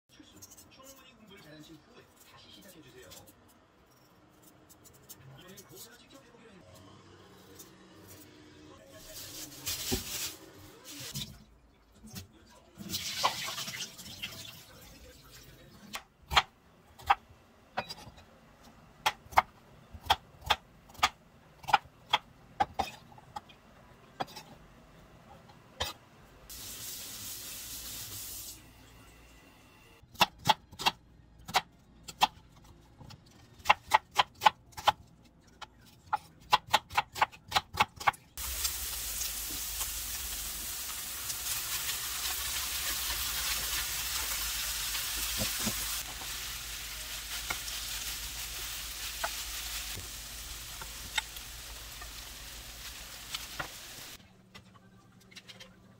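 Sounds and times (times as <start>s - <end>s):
food sizzling in frying pan: 9.2s - 11.2s, 26.5s - 28.7s, 38.4s - 54.2s.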